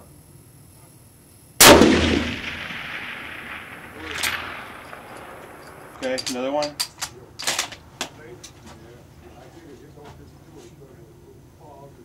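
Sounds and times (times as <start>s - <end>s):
rifle shot with echo: 1.6s - 6.7s.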